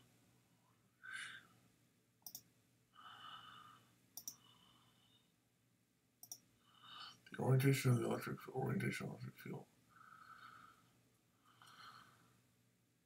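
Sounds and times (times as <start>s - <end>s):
faint breathy sighs: 1.0s - 1.6s, 3.0s - 5.3s, 9.9s - 12.4s
computer mouse clicks: 2.2s - 2.5s, 4.2s - 4.4s, 6.2s - 6.5s.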